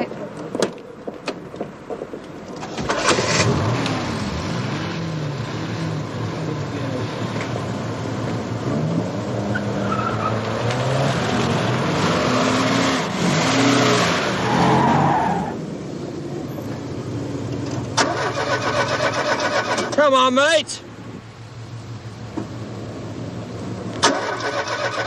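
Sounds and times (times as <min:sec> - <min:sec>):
car engine revving and driving past: 0:02.6 - 0:19.9.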